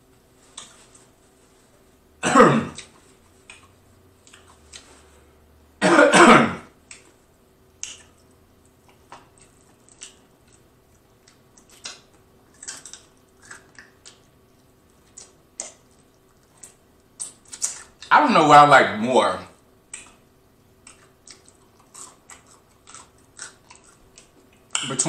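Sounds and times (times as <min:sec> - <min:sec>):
man coughing: 0:02.2 - 0:02.8, 0:05.8 - 0:06.7
chewing and lip smacks: 0:02.8 - 0:05.1, 0:06.8 - 0:07.2, 0:07.8 - 0:18.1, 0:19.6 - 0:25.0.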